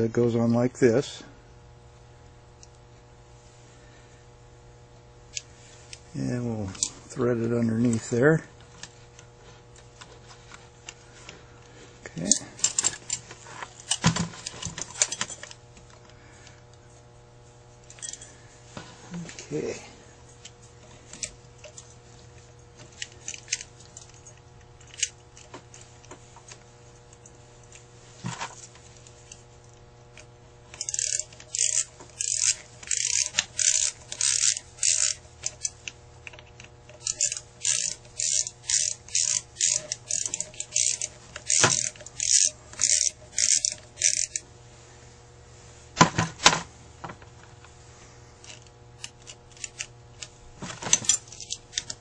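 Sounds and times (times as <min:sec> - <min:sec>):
ratchet strokes: 0:30.7 - 0:35.9, 0:36.9 - 0:44.4.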